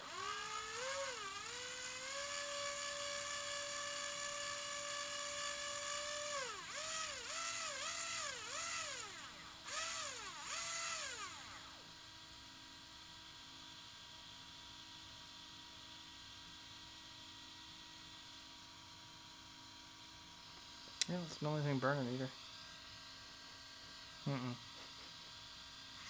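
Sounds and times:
electric motor whining: 0:00.0 - 0:11.8.

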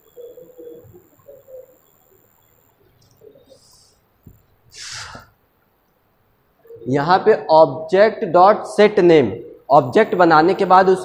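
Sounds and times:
short hiss: 0:04.7 - 0:05.3.

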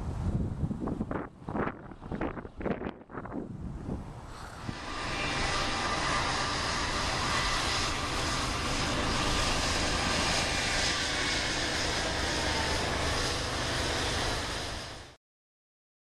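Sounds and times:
diesel locomotives rumbling: 0:03.3 - 0:15.2.

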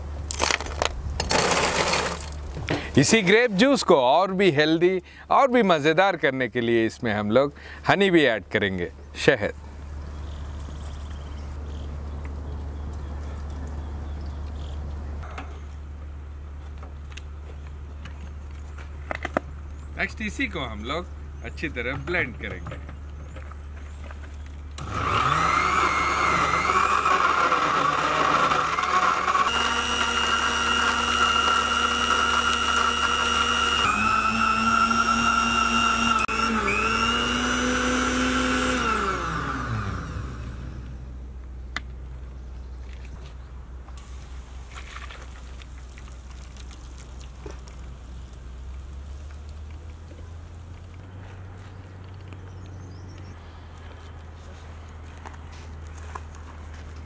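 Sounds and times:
blender motor whining: 0:24.8 - 0:41.1.

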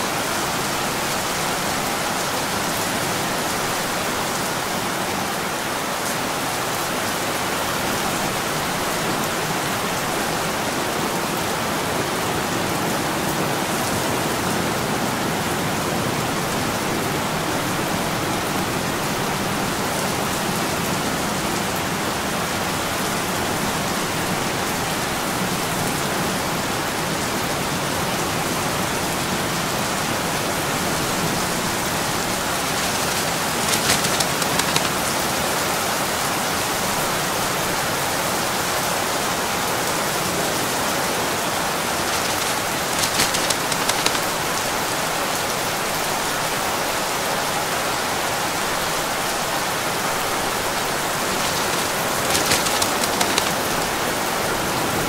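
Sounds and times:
steady rain pouring: 0:00.0 - 0:55.0.

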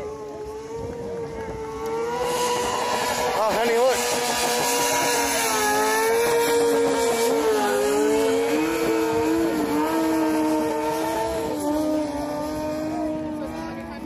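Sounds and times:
motorcycle engine at high revs: 0:00.0 - 0:14.0.

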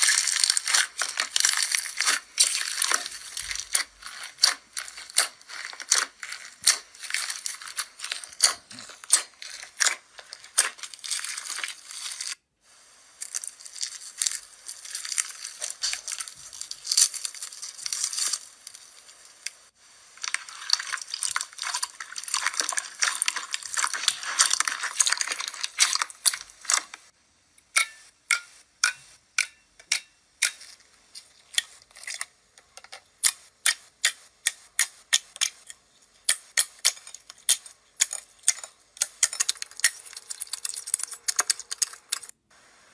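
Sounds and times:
slime crackling when squeezed: 0:00.0 - 0:12.4, 0:13.2 - 0:19.4, 0:20.2 - 0:27.1.

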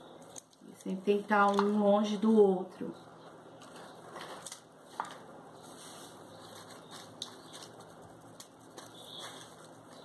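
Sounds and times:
spatula tapping and rustling: 0:03.6 - 0:10.0.

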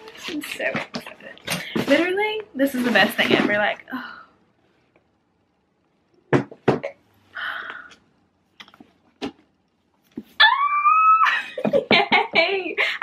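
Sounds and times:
woman squealing with delight: 0:10.4 - 0:11.6.

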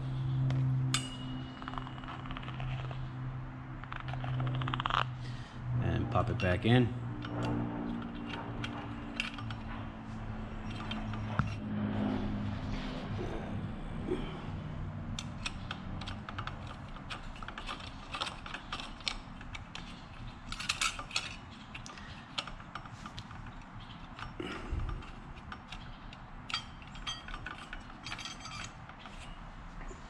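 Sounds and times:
metal clutch plates clicking: 0:07.2 - 0:09.9, 0:10.6 - 0:11.5, 0:15.1 - 0:29.2.

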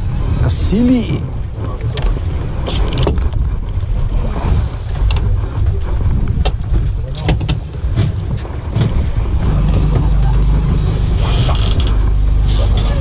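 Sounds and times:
low rumbling boat noise: 0:00.0 - 0:13.0
sharp knocks and clicks: 0:06.4 - 0:09.1.

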